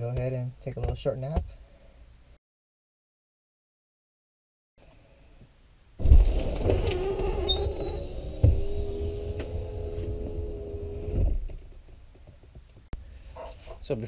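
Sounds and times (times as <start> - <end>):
electric window motor hum: 6.2 - 11.3.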